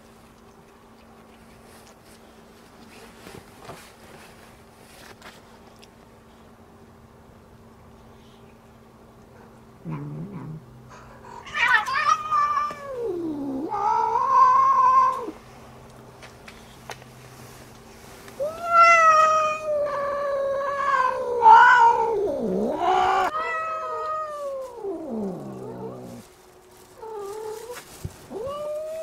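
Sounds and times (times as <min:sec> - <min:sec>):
cats yowling: 0:11.3 - 0:15.4, 0:18.4 - 0:26.3, 0:27.0 - 0:29.0.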